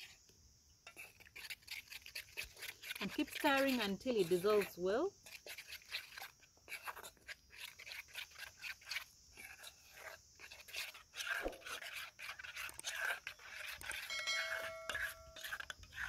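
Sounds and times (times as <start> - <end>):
spoon clinking and scraping bowl: 0.9 - 16.0
short chiming tone: 14.1 - 15.5.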